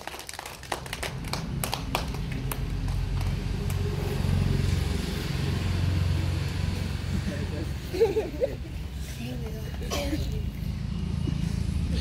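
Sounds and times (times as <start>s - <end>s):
scattered claps: 0.0s - 3.9s
vehicle engine humming: 0.0s - 12.0s.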